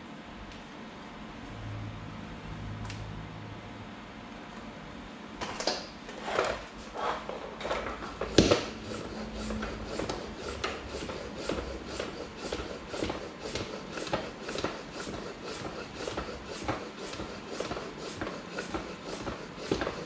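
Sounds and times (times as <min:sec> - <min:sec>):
floor pump air hissing: 0:07.9 - 0:20.0.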